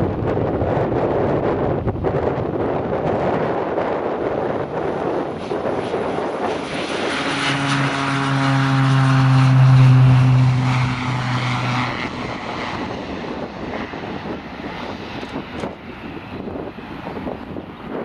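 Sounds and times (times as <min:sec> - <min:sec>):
propeller aircraft drone: 0:00.0 - 0:18.0
wind on microphone: 0:00.0 - 0:18.0.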